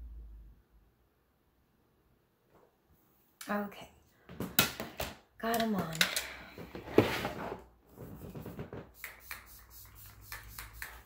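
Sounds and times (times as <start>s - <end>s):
spray bottle hissing: 8.9s - 11.0s.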